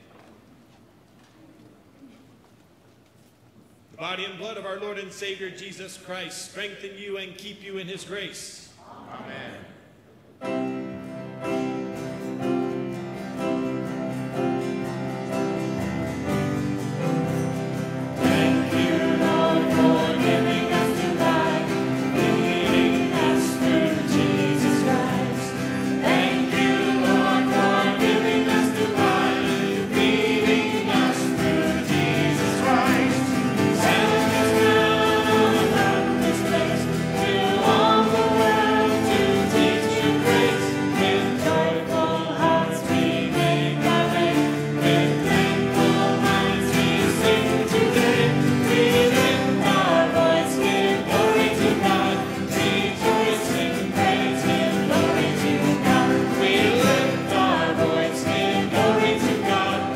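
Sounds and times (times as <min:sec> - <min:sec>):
guitar accompaniment: 0:10.1 - 0:59.9
group singing a hymn: 0:16.3 - 0:59.9.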